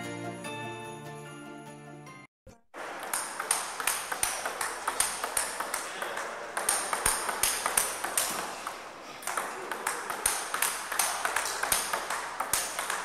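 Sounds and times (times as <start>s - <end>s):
festive holiday song with sleigh bells: 0.0s - 2.3s.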